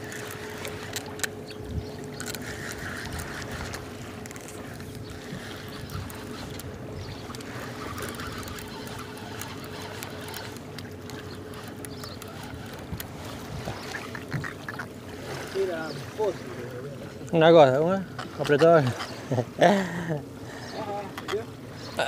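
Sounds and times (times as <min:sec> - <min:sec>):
small clicks: 0:00.0 - 0:13.1
motor humming: 0:00.0 - 0:22.0
water noise: 0:00.0 - 0:22.0
wind: 0:00.0 - 0:22.0.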